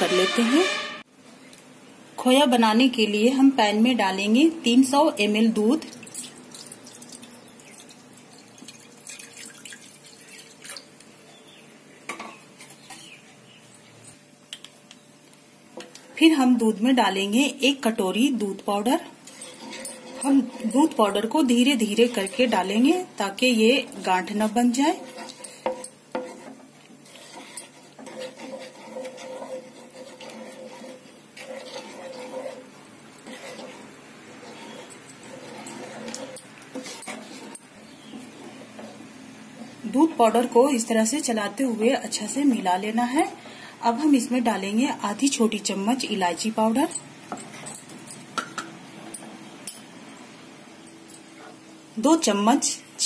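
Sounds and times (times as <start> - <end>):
milk trickling into a pan: 6.0 - 10.9
spatula scraping a pan: 19.2 - 40.5.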